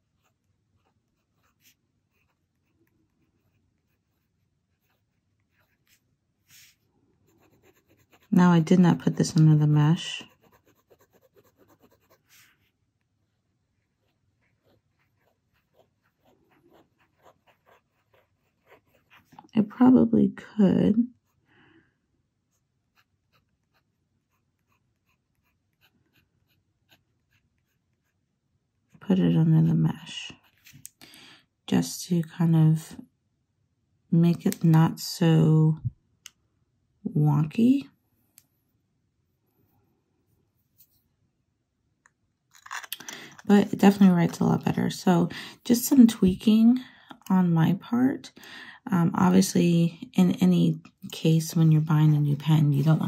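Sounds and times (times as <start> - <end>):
pen nib scratching on paper: 0.0 - 6.6, 7.3 - 9.5, 10.2 - 12.6, 14.0 - 19.5, 22.9 - 28.2.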